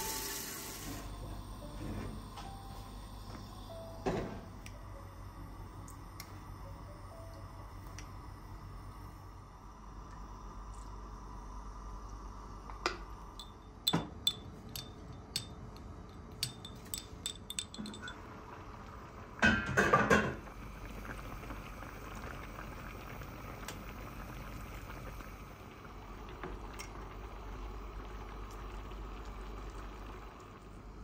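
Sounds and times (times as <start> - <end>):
spoon clinking against pots: 13.4 - 18.2
cookware clattering: 16.4 - 18.2.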